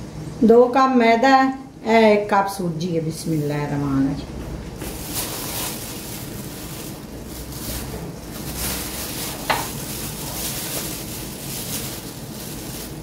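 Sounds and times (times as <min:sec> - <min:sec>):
plastic bag rustling: 0:04.4 - 0:13.0.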